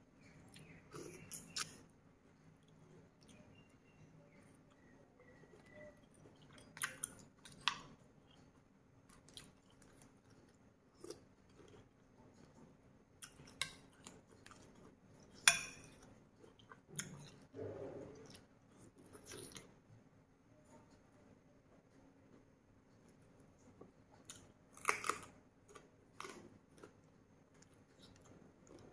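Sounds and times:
woman chewing and lip smacking: 0.2 - 1.9, 2.6 - 12.6, 13.2 - 19.7.

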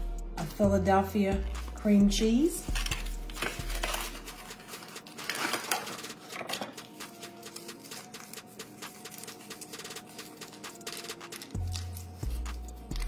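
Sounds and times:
foil wrapper crinkling: 2.6 - 13.0.

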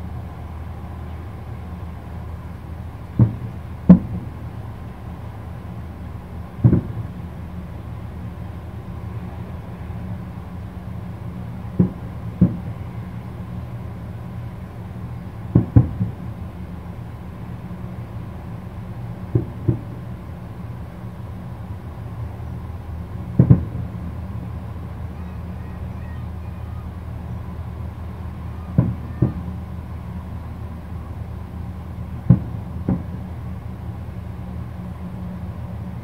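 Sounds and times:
low background rumble: 0.0 - 36.0
distant fireworks booming: 3.1 - 4.6, 6.5 - 7.2, 11.6 - 12.8, 15.4 - 16.4, 19.2 - 20.1, 23.2 - 24.3, 27.8 - 30.8, 31.6 - 33.6.

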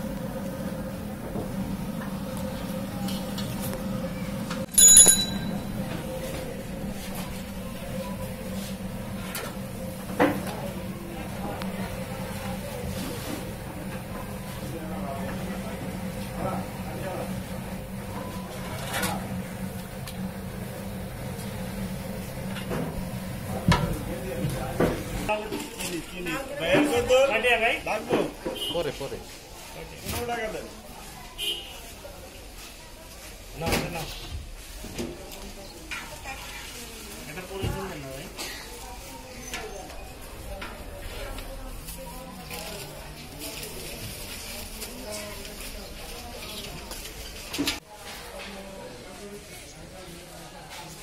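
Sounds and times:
steady low hum: 0.0 - 25.3.

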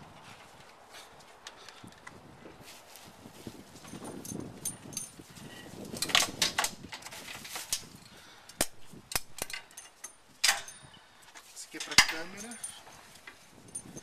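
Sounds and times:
metallic clicks of trailer hitch: 8.5 - 14.0.

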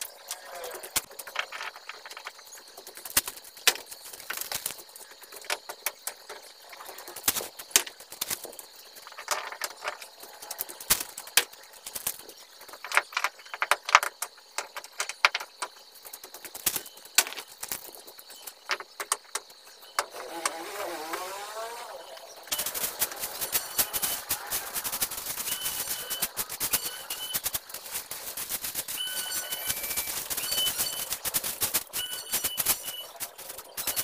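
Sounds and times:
bricks and stones clacking: 0.2 - 20.1.

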